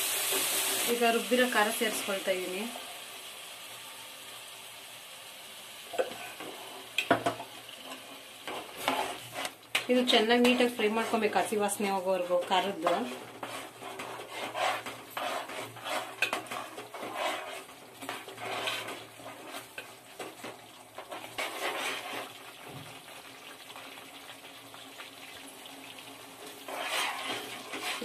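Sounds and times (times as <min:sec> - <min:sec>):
metal spoon scraping a pot: 0:07.8 - 0:22.4, 0:26.5 - 0:28.0.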